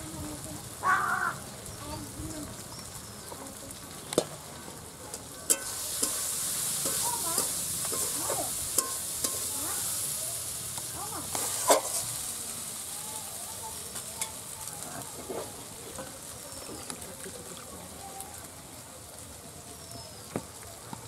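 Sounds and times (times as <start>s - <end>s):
vegetables sizzling in oil: 0.0s - 21.0s
metal spatula clinking and scraping: 5.4s - 9.6s, 11.2s - 12.1s, 14.2s - 14.5s.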